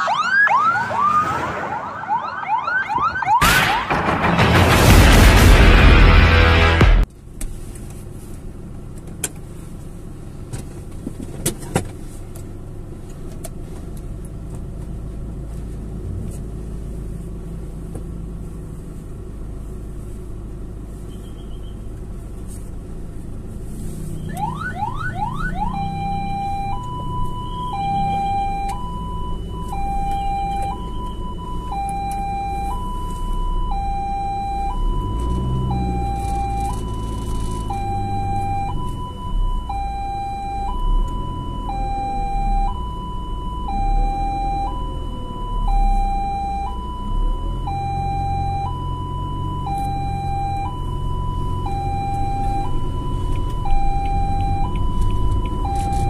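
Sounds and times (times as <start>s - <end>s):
ambulance siren: 0.0s - 4.2s, 24.2s - 56.0s
low vehicle engine rumble: 3.4s - 56.0s.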